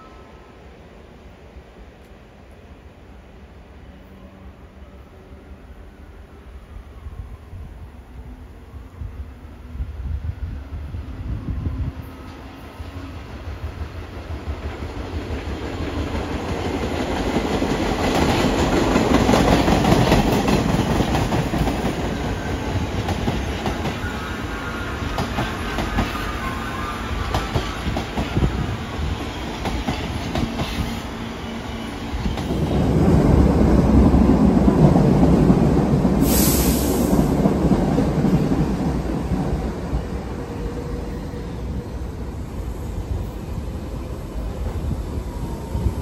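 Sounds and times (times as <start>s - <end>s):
subway train wheels clattering: 8.2s - 46.0s
high hiss: 36.0s - 37.6s.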